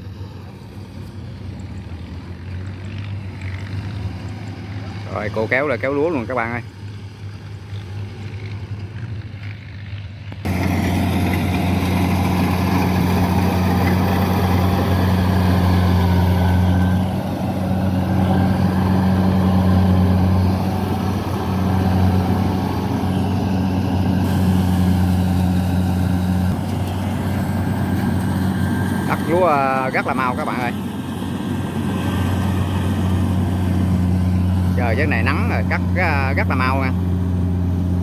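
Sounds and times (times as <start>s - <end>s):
combine harvester engine hum: 0.0s - 38.0s
distant machine working: 10.5s - 38.0s.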